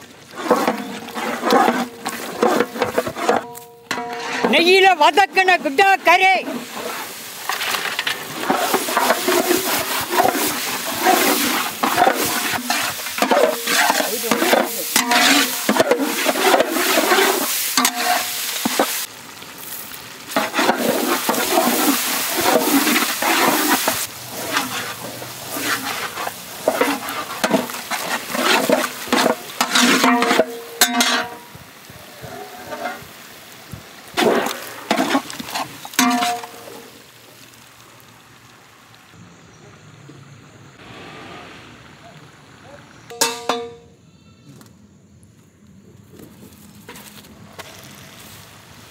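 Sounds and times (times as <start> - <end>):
wooden paddle scraping a pan: 0.0 - 19.1, 20.3 - 31.5, 32.2 - 33.2, 34.2 - 36.9
meat sizzling in a pan: 5.4 - 38.5.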